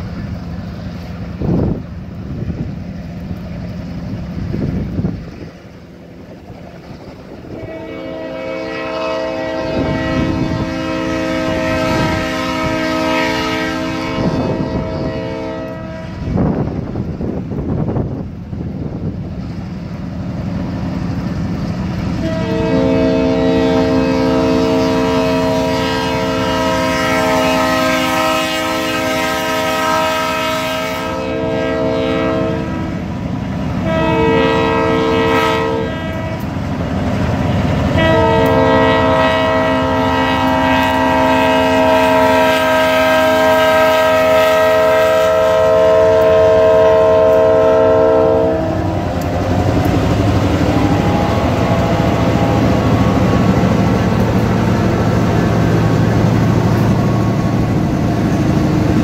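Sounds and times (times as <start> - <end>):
diesel engine and wheels rumbling: 0.0 - 59.0
locomotive air horn blasts: 7.5 - 16.5, 22.1 - 33.1, 33.7 - 36.6, 37.6 - 59.0.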